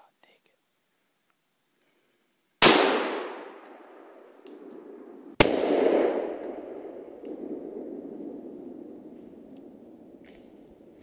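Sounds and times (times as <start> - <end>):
rifle shot with echo: 2.6 - 10.9.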